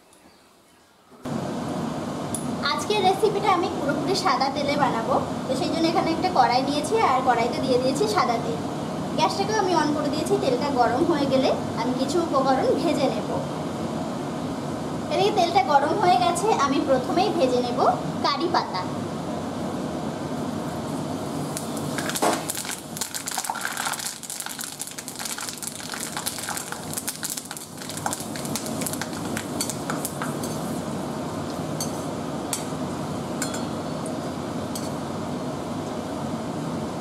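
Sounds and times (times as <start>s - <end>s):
leaves sizzling and crackling in oil: 21.2s - 30.9s.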